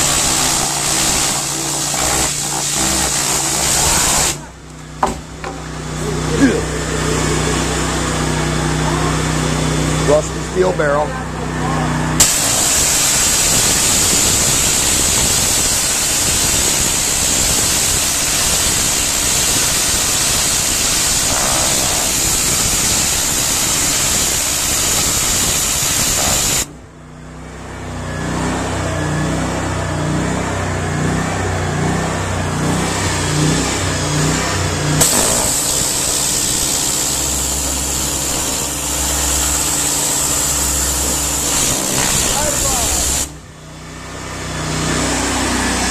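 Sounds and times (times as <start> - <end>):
pressure washer jet hissing: 0.0 - 4.6, 12.2 - 26.7, 35.0 - 43.4
engine and pump running: 0.0 - 45.9.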